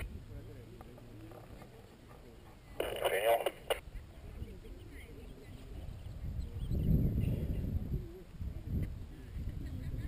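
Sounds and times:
wind rumbling on microphone: 0.0s - 0.5s, 2.8s - 10.0s
faint voices: 0.0s - 10.0s.

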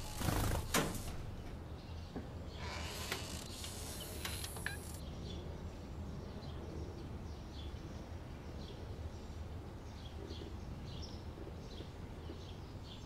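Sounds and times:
sharp mechanical clicks: 0.0s - 1.6s, 2.8s - 5.0s.

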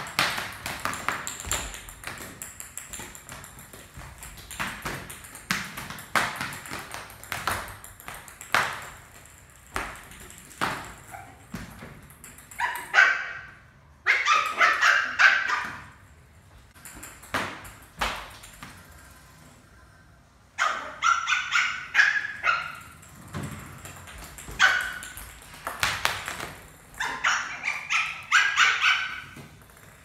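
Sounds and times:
plastic bat and ball tapping on tiles: 0.0s - 13.0s, 16.7s - 19.0s, 22.6s - 27.2s, 27.8s - 30.0s
puppy barking yips: 12.6s - 15.9s, 20.6s - 22.9s, 24.6s - 25.1s, 27.0s - 29.4s.

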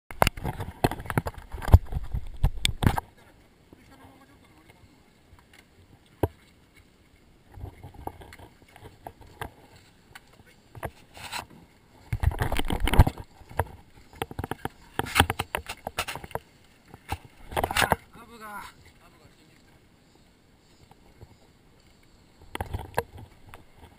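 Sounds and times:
wetsuit rubbing on camera: 7.5s - 23.9s.

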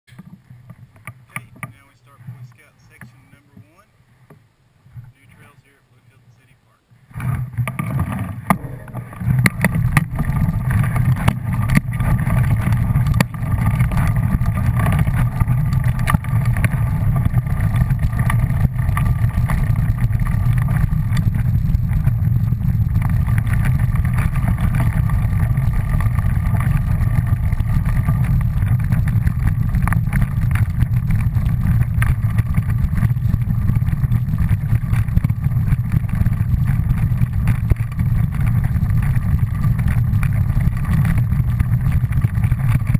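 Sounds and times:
knocks from bumps: 0.1s - 4.4s
vehicle rumbling on dirt trail: 0.1s - 5.7s, 7.0s - 42.9s.

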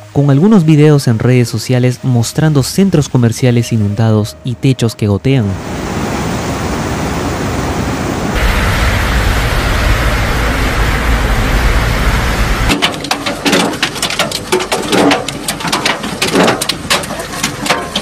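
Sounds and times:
vehicle ploughing through flood water: 8.4s - 15.2s
hail pelting the ground: 8.4s - 18.0s.

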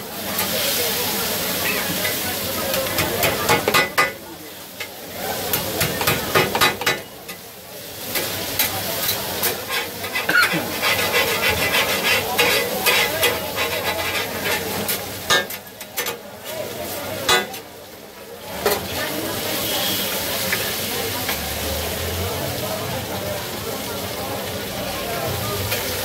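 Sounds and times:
meat sizzling on griddle: 0.0s - 26.0s
metal spatulas clattering on griddle: 1.7s - 4.2s, 4.8s - 7.4s, 8.1s - 16.2s, 17.2s - 17.6s.

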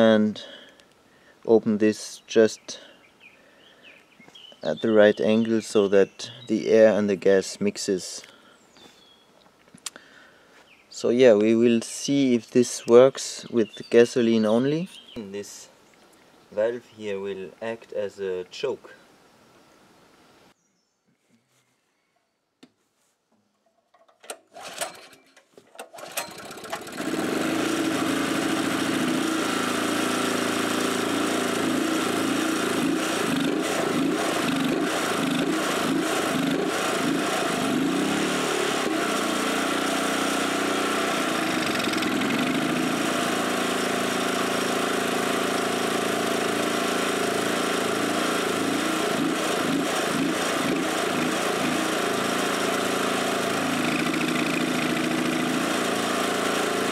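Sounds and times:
generator engine cranking: 24.1s - 56.9s
generator engine running: 26.0s - 56.9s.

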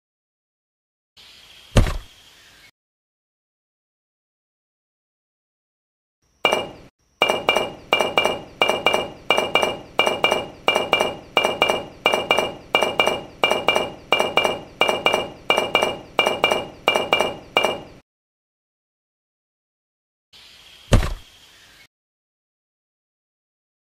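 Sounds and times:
sharp metallic clinks: 6.5s - 18.0s.

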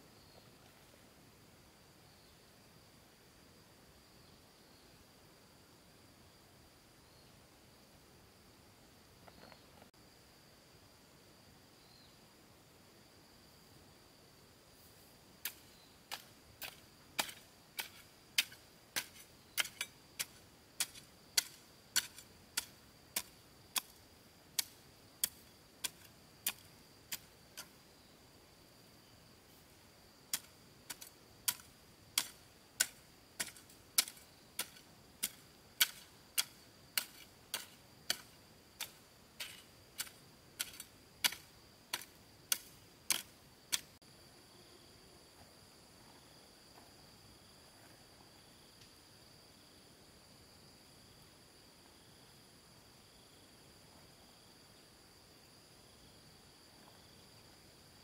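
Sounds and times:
hand tool striking: 15.5s - 24.0s, 24.6s - 27.3s, 30.3s - 43.9s.

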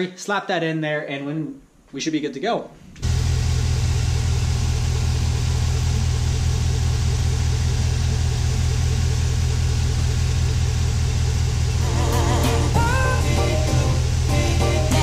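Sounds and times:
pickup engine idling: 3.0s - 15.0s.

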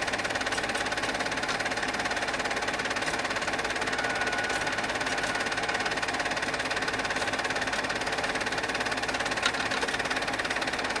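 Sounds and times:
film projector clattering: 0.0s - 11.0s.

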